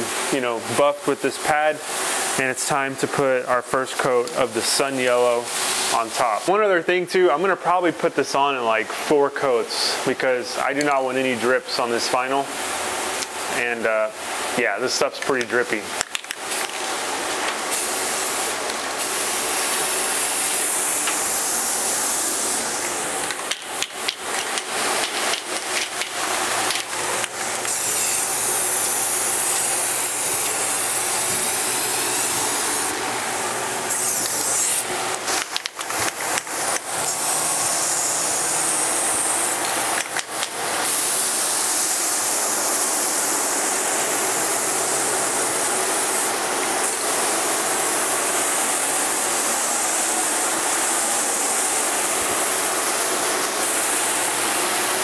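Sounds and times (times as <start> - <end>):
aerosol spray can hissing: 17.7 - 55.0.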